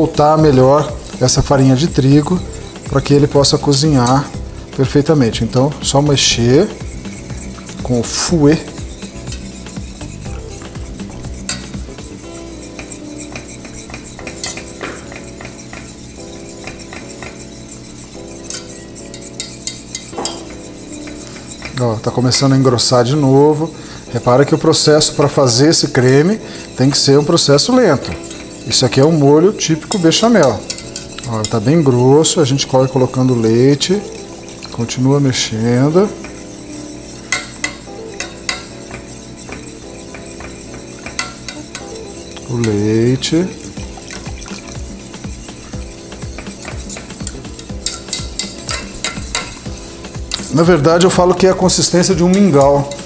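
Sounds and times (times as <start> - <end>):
steady low hum: 0.0 - 24.5
whisk scraping metal pot: 0.0 - 53.0.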